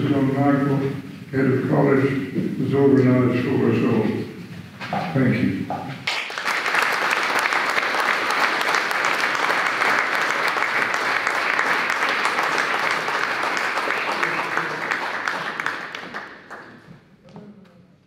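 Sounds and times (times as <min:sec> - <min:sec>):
audience applauding: 0:06.0 - 0:16.9.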